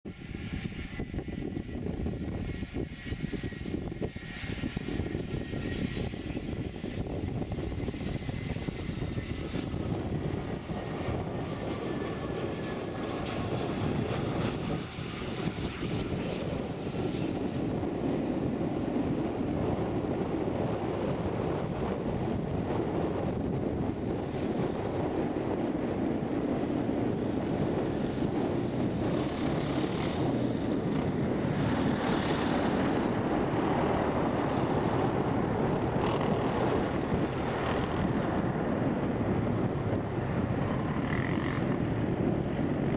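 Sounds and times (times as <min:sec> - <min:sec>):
jet engine rumble: 0:00.0 - 0:42.9
high jet whine: 0:00.1 - 0:42.9.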